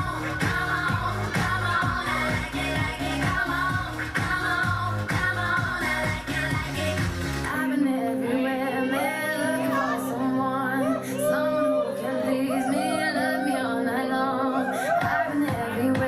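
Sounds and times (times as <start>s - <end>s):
deep bass: 0.0s - 7.5s
woman singing melody: 0.0s - 16.0s.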